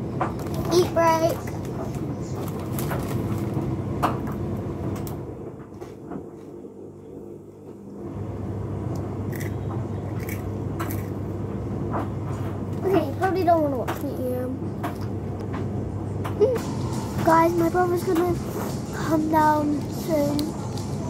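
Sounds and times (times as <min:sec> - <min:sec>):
low hum: 0:00.0 - 0:13.8
crisp packet crackling: 0:00.3 - 0:03.6
crisps crunching: 0:00.3 - 0:03.7, 0:09.3 - 0:11.2, 0:16.6 - 0:21.0.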